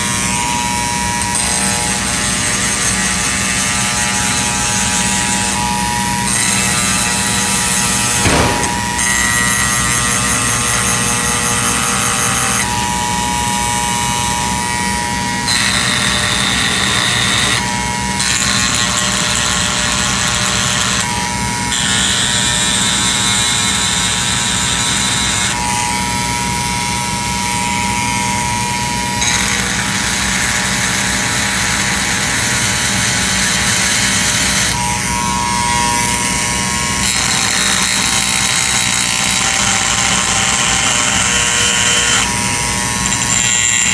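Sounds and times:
rotary tool grinding: 0:35.8 - 0:43.9.

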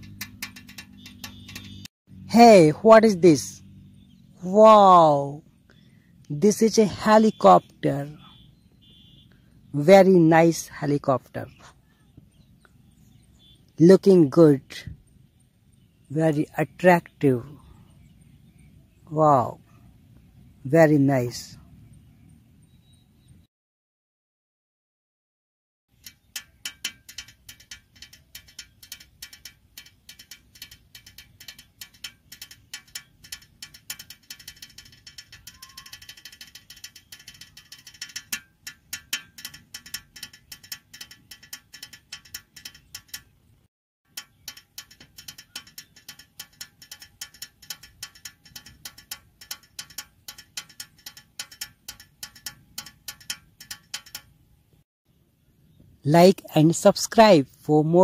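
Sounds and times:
plastic toy clicking rapidly: 0:00.0 - 0:01.9, 0:25.9 - 0:43.4, 0:44.1 - 0:54.3.

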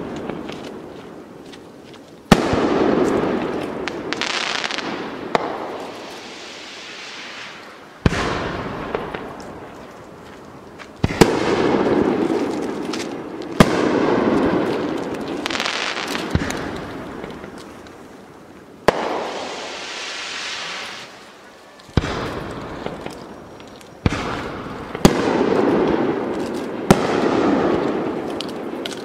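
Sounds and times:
crackling hiss: 0:00.0 - 0:29.0
firework shells bursting: 0:11.0 - 0:18.0.

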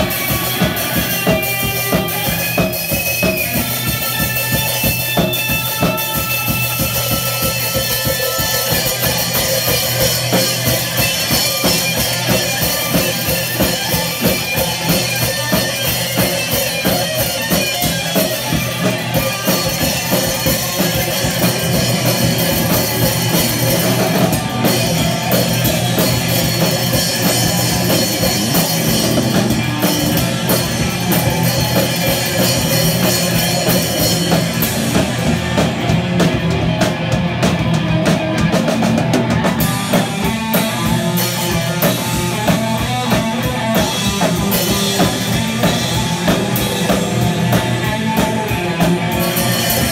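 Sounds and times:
electric guitar: 0:00.0 - 0:49.9
fast drumming on drum kit: 0:00.0 - 0:49.9.

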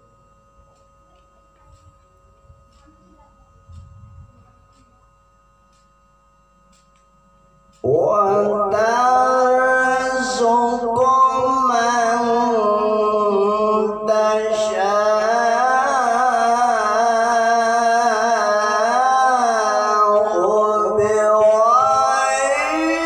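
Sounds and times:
man reciting melodically: 0:07.8 - 0:23.0.

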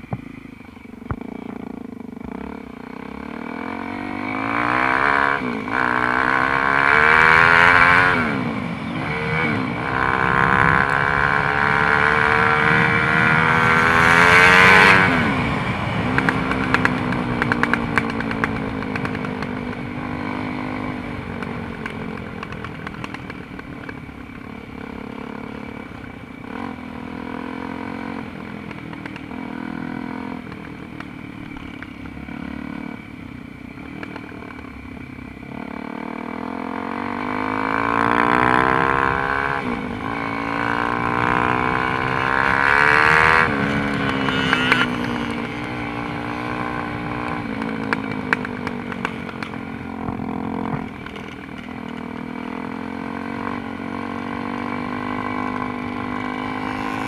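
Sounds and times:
dirt bike engine revving: 0:35.6 - 0:48.5, 0:52.2 - 0:57.0.

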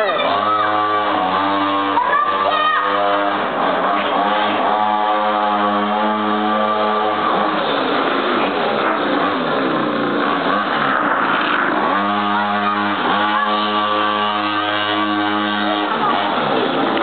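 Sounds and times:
small engine revving: 0:00.0 - 0:17.0.

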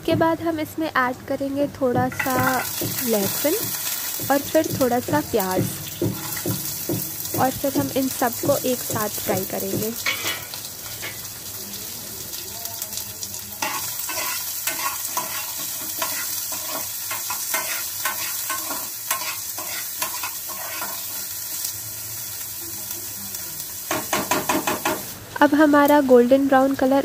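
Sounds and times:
garlic and onion sizzling in oil: 0:00.0 - 0:27.0
spatula scraping a pan: 0:13.6 - 0:21.2.

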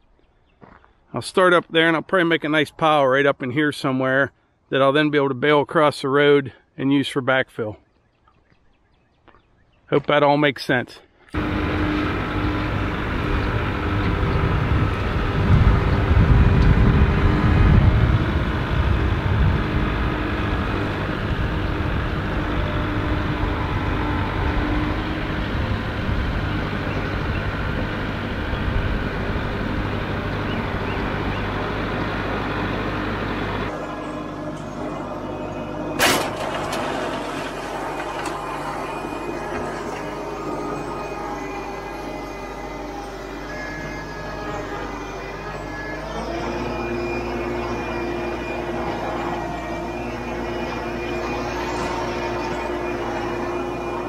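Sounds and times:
tractor diesel engine running: 0:11.3 - 0:54.0.

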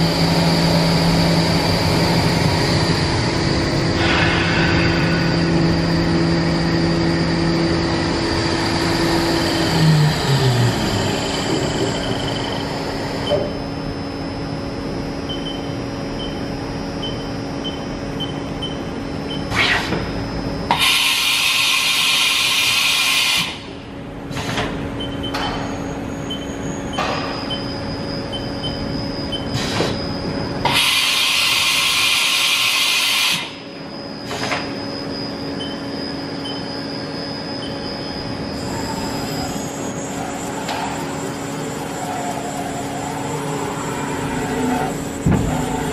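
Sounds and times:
milling machine hum: 0:00.0 - 0:45.9
loud machine hiss: 0:03.8 - 0:07.5, 0:20.7 - 0:23.6, 0:30.6 - 0:33.6.

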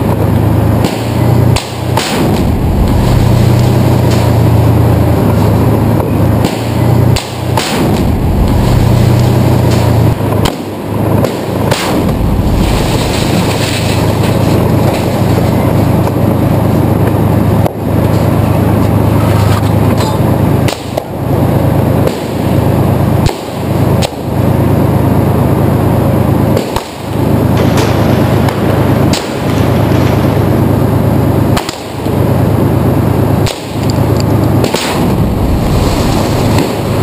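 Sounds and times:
heavy bangs: 0:00.0 - 0:18.8, 0:26.4 - 0:37.0
rapid gunfire: 0:00.4 - 0:05.4, 0:06.3 - 0:15.2, 0:26.5 - 0:30.7, 0:31.4 - 0:32.3, 0:33.4 - 0:33.9, 0:34.6 - 0:37.0.

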